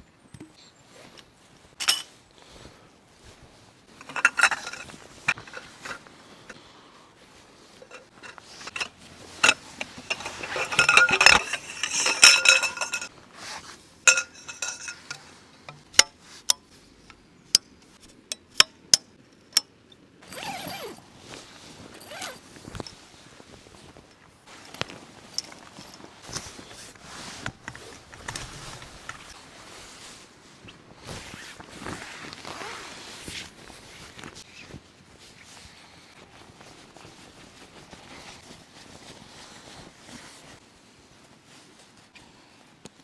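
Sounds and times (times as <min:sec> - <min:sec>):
tent pole clinking and scraping: 0:00.8 - 0:19.6, 0:20.2 - 0:40.6
canvas rustling: 0:00.9 - 0:15.4, 0:20.2 - 0:42.8
tent pole sections clicking: 0:03.9 - 0:06.6, 0:07.8 - 0:13.1, 0:14.1 - 0:19.0.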